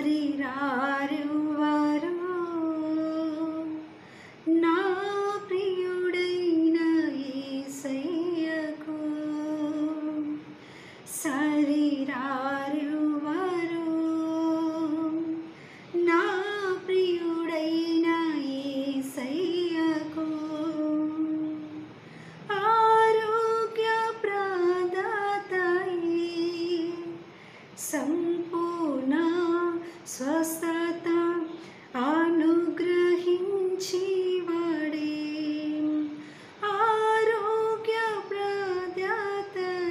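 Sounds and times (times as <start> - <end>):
woman singing a hymn unaccompanied: 0.0 - 39.9
singer breathing: 3.9 - 4.5, 10.4 - 11.1, 15.4 - 16.0, 21.8 - 22.5, 27.2 - 27.8, 36.2 - 36.6.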